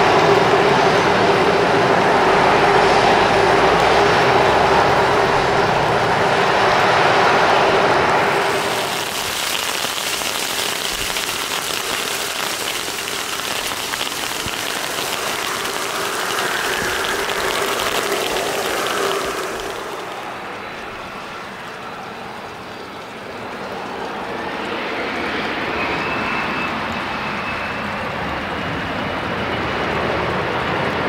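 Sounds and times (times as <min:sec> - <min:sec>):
jet engines whining: 0:00.0 - 0:10.3, 0:11.3 - 0:31.0
rain hissing: 0:08.1 - 0:24.1.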